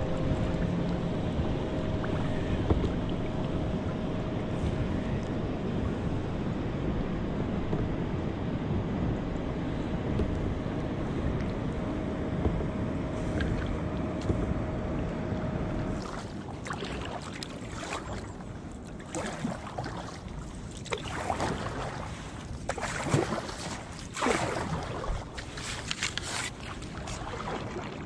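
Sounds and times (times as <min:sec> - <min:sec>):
choppy water: 0:00.0 - 0:28.0
kayak paddle splashing: 0:15.8 - 0:28.0.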